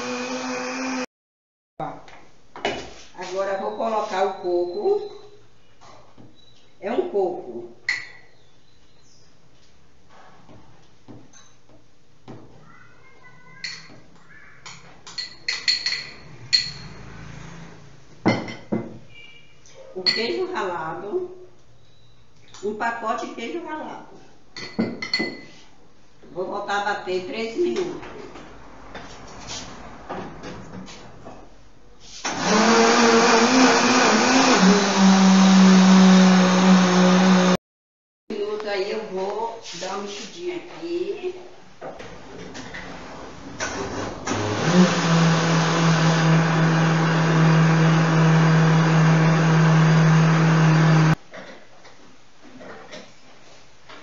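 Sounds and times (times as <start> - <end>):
electric blender running: 0.0 - 1.1, 32.2 - 37.6, 43.7 - 51.2.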